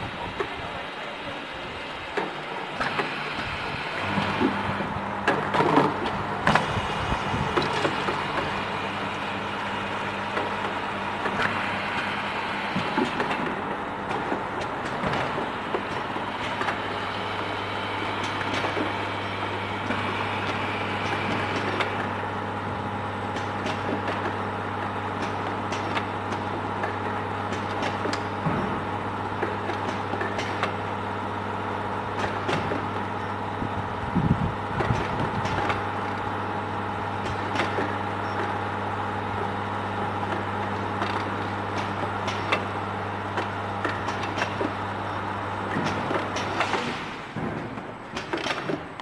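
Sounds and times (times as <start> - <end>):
low machine hum: 0.0 - 49.0
clicks and knocks of filling machine: 18.1 - 19.0, 23.3 - 30.9, 32.1 - 33.3, 34.8 - 36.2, 37.2 - 38.6, 39.4 - 44.9, 45.7 - 49.0.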